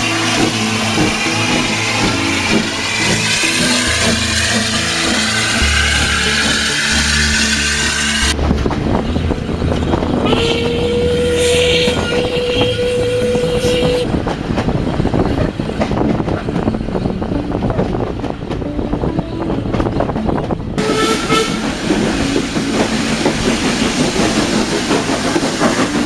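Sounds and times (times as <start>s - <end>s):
steam locomotive whistle: 0.0s - 8.4s, 10.1s - 14.1s, 20.8s - 23.0s
music: 0.0s - 26.0s
train rumble with wheel clicks: 0.0s - 26.0s.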